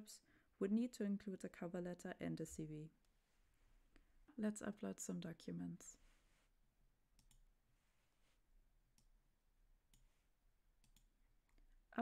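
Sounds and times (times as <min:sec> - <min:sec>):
faint computer mouse clicks: 0:07.2 - 0:07.4, 0:10.8 - 0:11.6.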